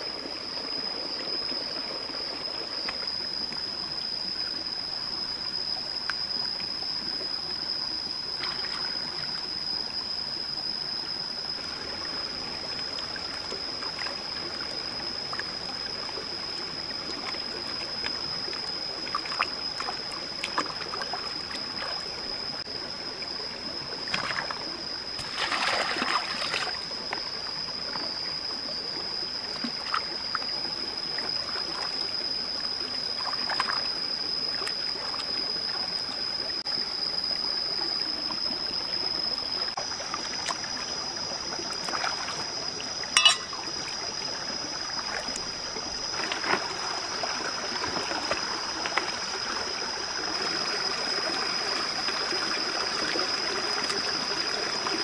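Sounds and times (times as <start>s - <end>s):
stream running over rocks: 0.0s - 55.0s
basket splashing in water: 25.2s - 26.7s
steady high-pitched tone: 43.0s - 43.9s.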